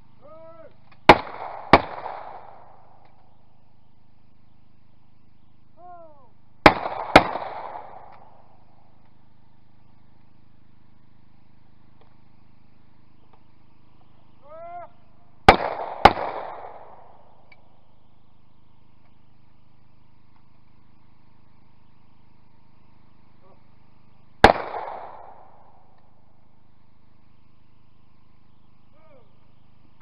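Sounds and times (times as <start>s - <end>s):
person calling: 0.2s - 0.8s, 5.7s - 6.4s, 14.4s - 15.1s
shotgun shots with echo: 1.1s - 3.1s, 6.6s - 8.5s, 15.4s - 17.3s, 24.4s - 26.0s.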